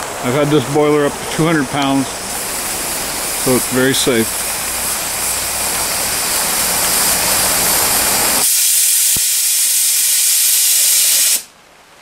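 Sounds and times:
safety valve hissing steam: 1.5s - 11.5s.

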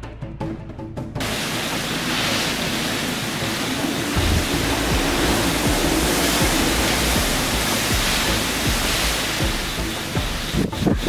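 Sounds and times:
strong wind roaring: 1.2s - 11.0s
wind buffeting microphone: 1.2s - 11.0s.

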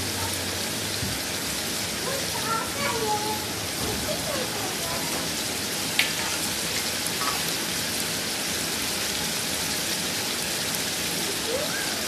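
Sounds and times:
meat frying in a pot: 0.0s - 12.0s.

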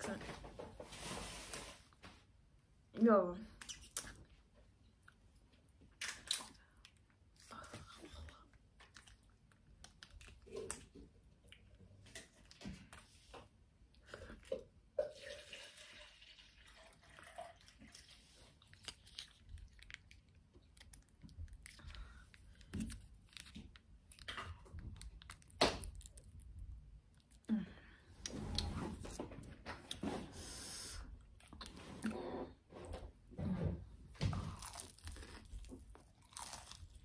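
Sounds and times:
chewing and crunching food: 3.5s - 30.3s, 31.1s - 32.8s, 33.4s - 37.0s
wet mouth sounds: 3.6s - 4.3s.

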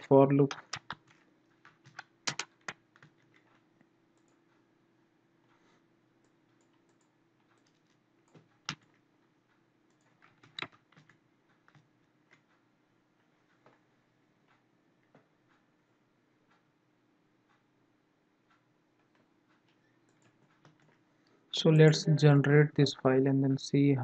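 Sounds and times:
computer keyboard typing: 0.1s - 3.6s, 4.2s - 4.5s, 6.2s - 9.0s, 9.9s - 12.6s, 19.0s - 21.0s.

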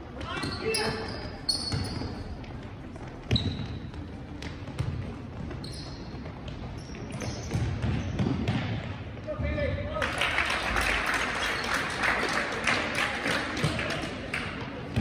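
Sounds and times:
sneaker squeaks: 0.1s - 8.7s
basketball bouncing on floor: 0.2s - 9.0s.

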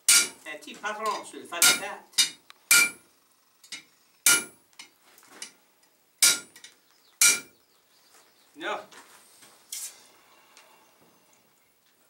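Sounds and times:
hammer striking metal on anvil: 0.1s - 0.4s, 1.1s - 3.0s, 3.7s - 4.6s, 6.2s - 6.6s, 7.2s - 7.5s.

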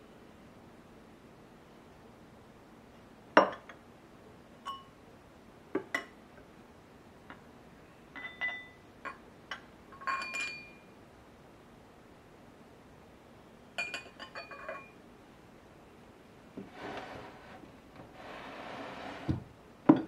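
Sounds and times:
glasses clinking: 3.4s - 3.8s, 4.6s - 4.9s, 8.1s - 10.9s, 13.8s - 15.0s.

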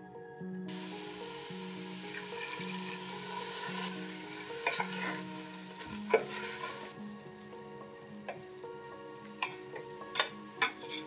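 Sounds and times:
bacon sizzling in a pot: 0.7s - 7.6s.

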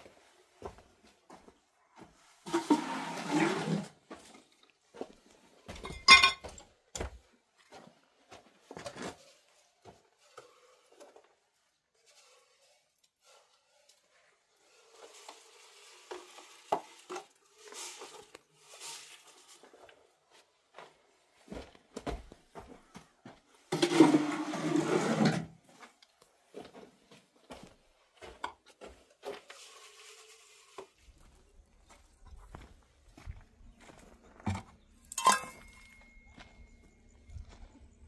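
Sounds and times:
objects knocking and clinking: 5.8s - 6.6s, 34.5s - 36.3s.

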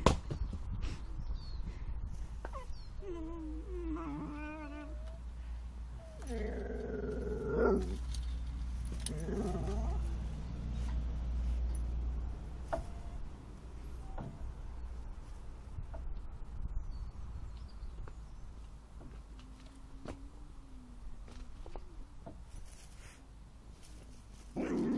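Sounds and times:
dog whining and grumbling: 2.4s - 5.3s, 5.9s - 8.1s, 9.0s - 10.2s.

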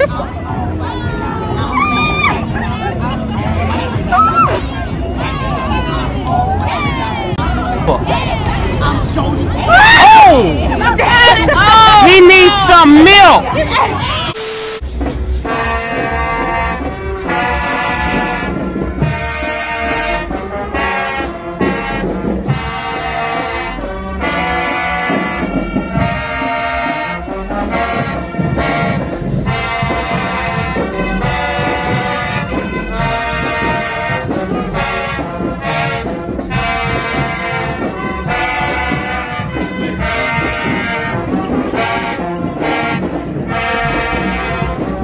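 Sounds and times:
brass section playing: 10.9s - 45.0s.

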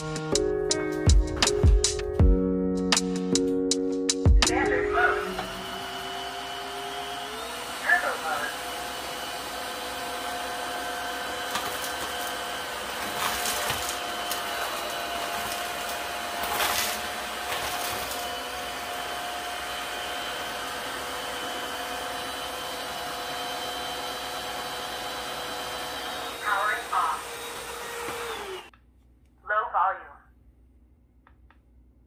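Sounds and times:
vacuum cleaner running: 4.3s - 28.7s.

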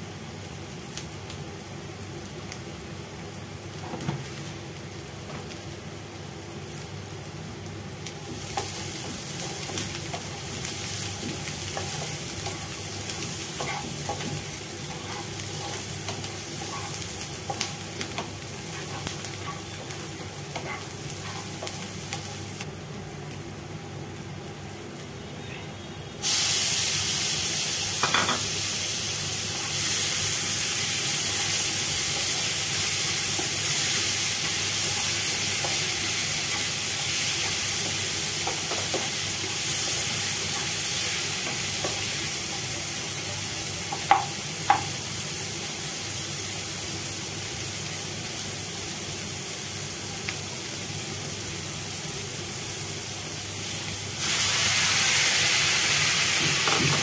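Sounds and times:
onion sizzling in oil: 0.0s - 25.3s, 26.1s - 57.0s.

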